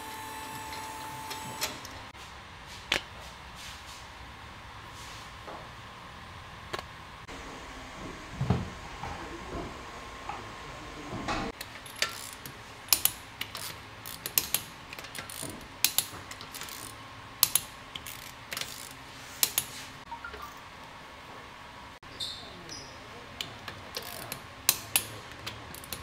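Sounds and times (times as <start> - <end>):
ratchet wrench clicking: 11.6 - 19.7, 23.9 - 26.0.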